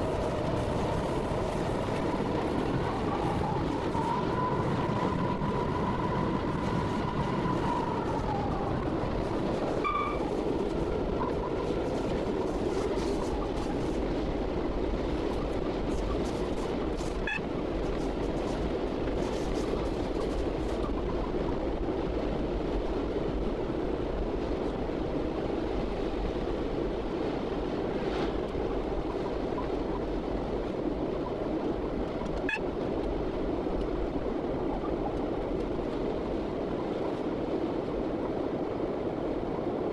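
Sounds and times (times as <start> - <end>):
diesel locomotive engine running: 0.0 - 25.7
wheel-on-rail noise: 0.0 - 39.9
high whine: 2.9 - 14.0.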